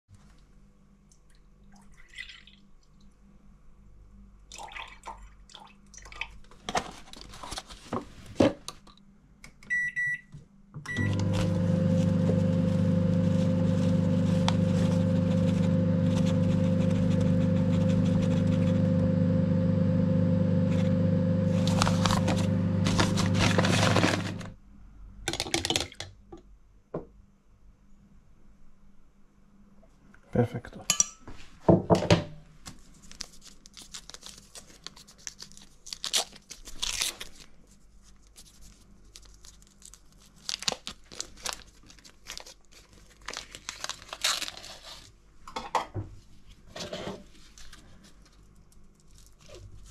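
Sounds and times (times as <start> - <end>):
microwave keypad beeps: 9.7 - 10.3, 10.9 - 11.3
microwave oven humming: 9.7 - 24.6
kitchen knocks and rustles: 31.2 - 32.4.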